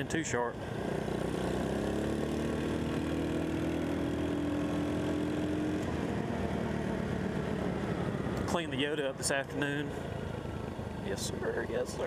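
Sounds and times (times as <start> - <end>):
scooter engine accelerating: 0.7 - 9.4.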